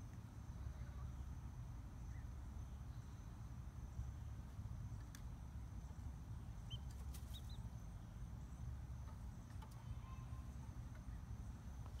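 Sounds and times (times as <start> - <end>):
low steady rumble: 0.0 - 12.0
chicks peeping: 6.6 - 7.7.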